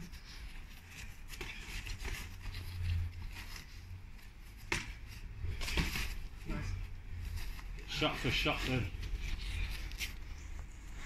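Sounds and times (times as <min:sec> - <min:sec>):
footwork scuffs and glove taps: 0:04.4 - 0:06.4.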